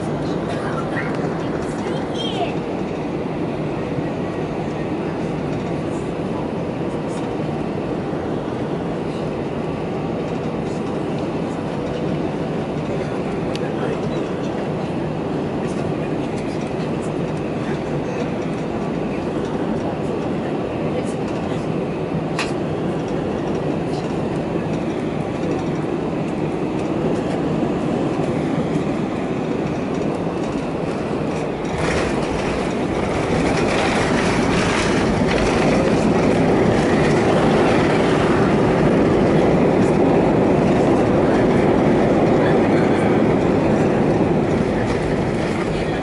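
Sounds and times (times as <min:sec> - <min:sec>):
airliner cabin rumble: 0:00.0 - 0:46.0
rattling clatter: 0:31.3 - 0:38.3.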